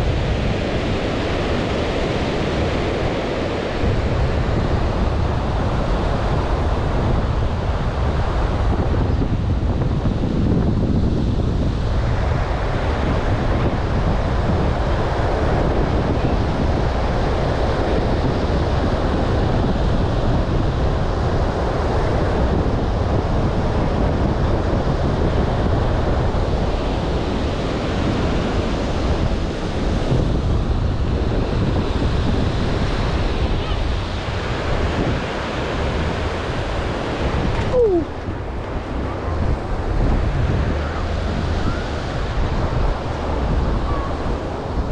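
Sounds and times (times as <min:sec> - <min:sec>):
wind buffeting microphone: 0:00.0 - 0:44.9
ocean surf breaking: 0:25.1 - 0:44.9.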